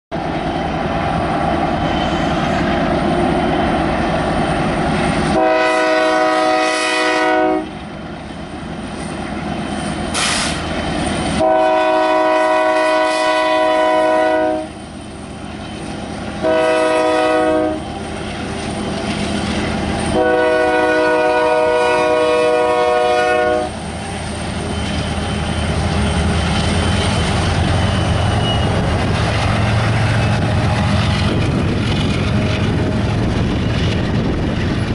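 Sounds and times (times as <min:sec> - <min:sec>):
locomotive horn blasts: 0:05.3 - 0:07.7, 0:11.4 - 0:14.8, 0:16.4 - 0:17.9, 0:20.1 - 0:23.8
locomotives rumbling: 0:23.7 - 0:34.9.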